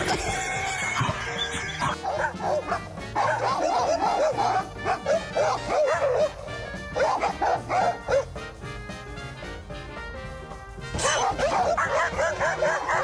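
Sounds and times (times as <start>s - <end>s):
background music: 0.0s - 13.0s
dogs barking: 1.8s - 8.4s, 10.9s - 13.0s.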